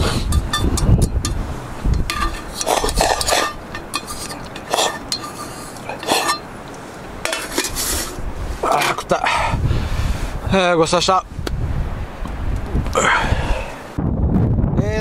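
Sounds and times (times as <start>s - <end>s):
chopsticks scraping metal lid: 0.0s - 6.5s, 7.2s - 9.2s
metal lid clinking on pot: 0.3s - 6.5s, 7.2s - 7.8s.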